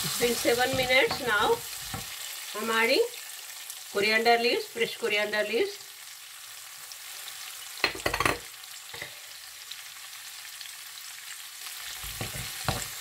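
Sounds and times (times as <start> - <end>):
potatoes sizzling in a pan: 0.0 - 13.0
wooden spatula scraping a pan: 12.0 - 13.0.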